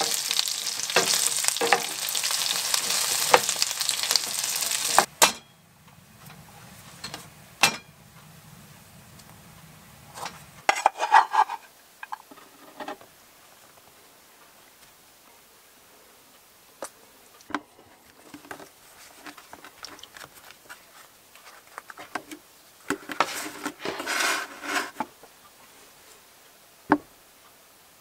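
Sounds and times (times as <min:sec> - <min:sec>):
tortilla rustling: 0:00.0 - 0:05.1, 0:17.9 - 0:26.2.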